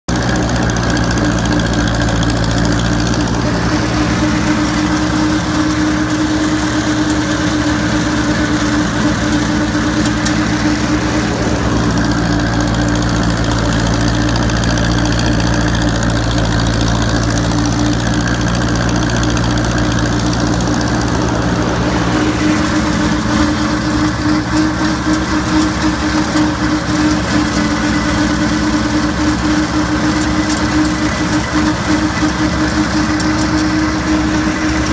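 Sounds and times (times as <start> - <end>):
tractor engine running under load: 0.0 - 34.9
rotary mower cutting grass: 0.1 - 34.9.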